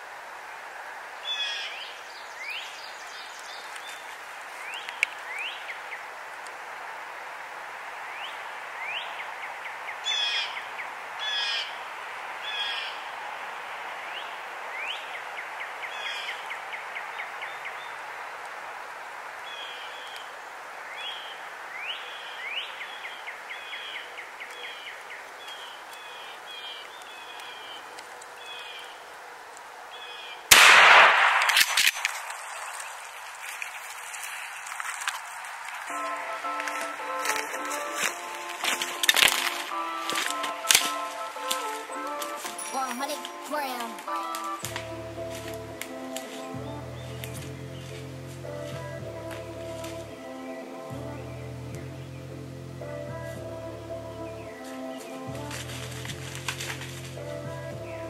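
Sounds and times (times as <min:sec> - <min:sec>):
songbirds chirping: 0:00.3 - 0:58.0
gunshot echoing: 0:30.5 - 0:32.6.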